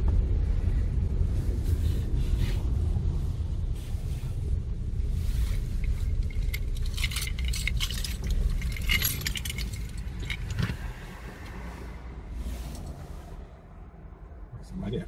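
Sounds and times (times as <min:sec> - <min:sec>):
steady low rumble: 0:00.0 - 0:15.0
keys jangling: 0:05.8 - 0:11.6.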